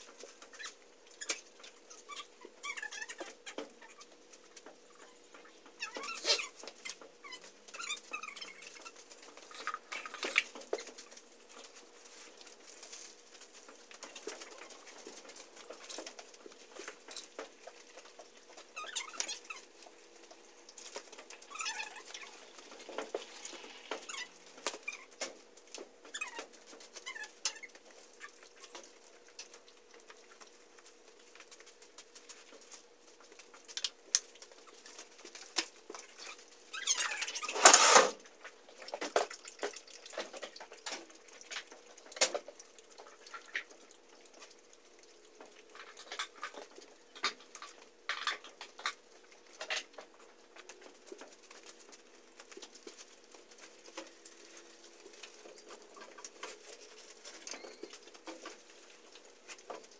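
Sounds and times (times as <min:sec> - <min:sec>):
scraping rustle: 0:34.4 - 0:38.3.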